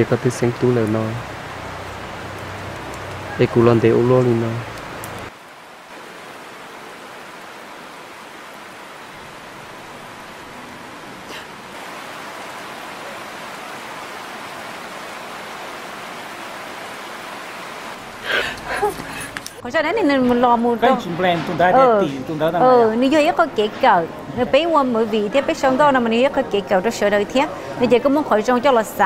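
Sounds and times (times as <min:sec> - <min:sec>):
steady rain falling: 0:00.0 - 0:29.0.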